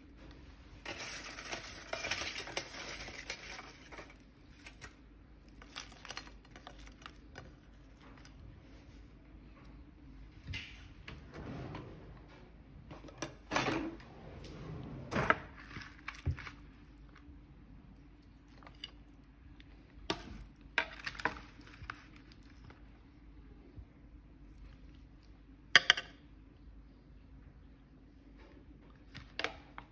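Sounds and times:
handling rustles: 0:00.8 - 0:09.1.

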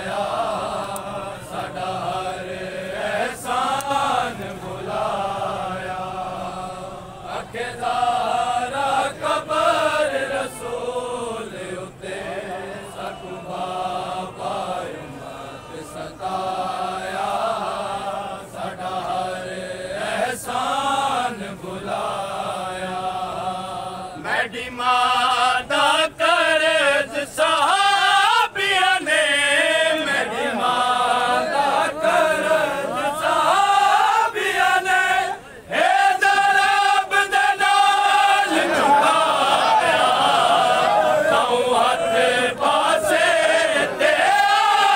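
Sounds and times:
men chanting a lament: 0:00.0 - 0:44.9.

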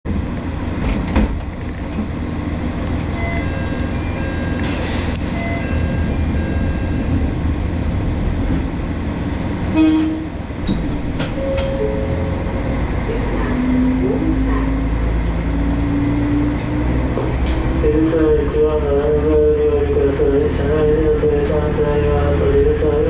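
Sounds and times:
diesel railcar engine idling: 0:00.1 - 0:16.3
train horn toot: 0:09.7 - 0:10.4.

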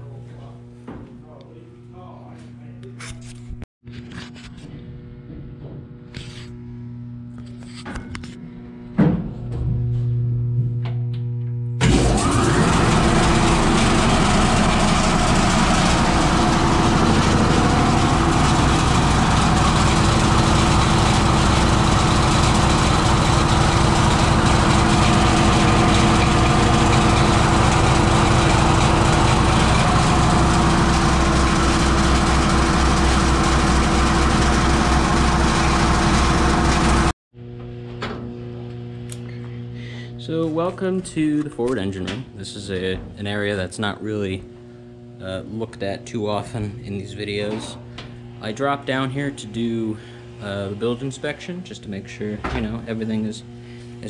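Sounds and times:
electric air compressor running: 0:11.8 - 0:37.1.

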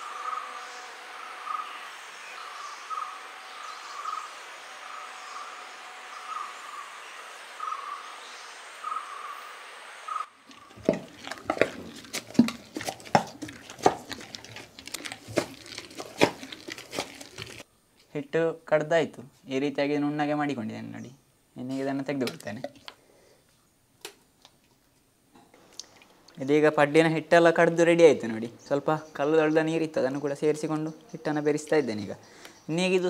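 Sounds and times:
stone pestle knocking and scraping: 0:10.7 - 0:17.6.

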